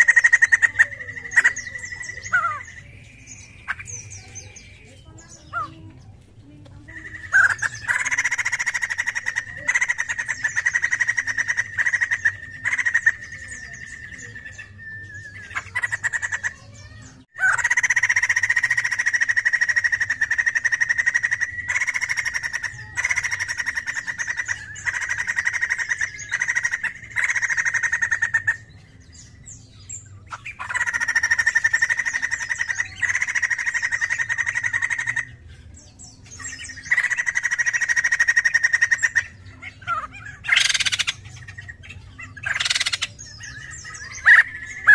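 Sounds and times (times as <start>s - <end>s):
bird singing rattling notes: 0.0s - 44.9s.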